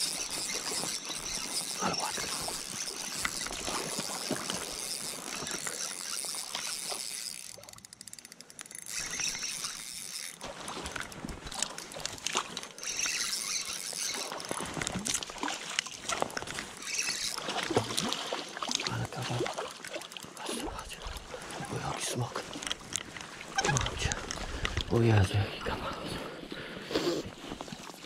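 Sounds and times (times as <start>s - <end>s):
landing net dipping into water: 0.0s - 7.8s, 9.0s - 20.3s
fish thrashing and splashing water: 0.0s - 25.1s.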